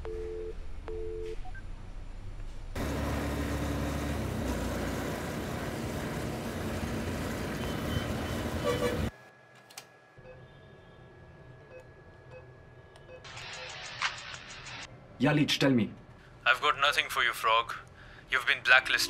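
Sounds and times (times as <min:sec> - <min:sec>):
motorcycle road and traffic noise: 0:02.8 - 0:09.1
horn sounding: 0:07.6 - 0:09.1.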